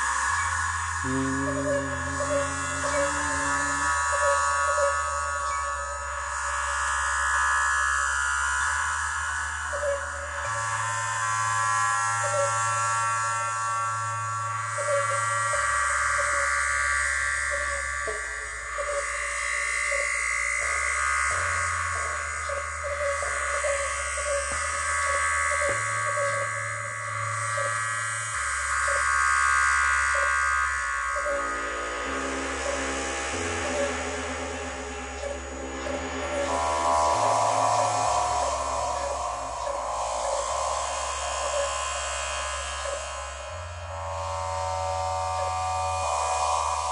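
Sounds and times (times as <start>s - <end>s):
steady buzzing tone: 0.0s - 14.8s, 17.9s - 46.9s
low synthesizer bass drone: 0.8s - 6.5s, 31.2s - 46.9s.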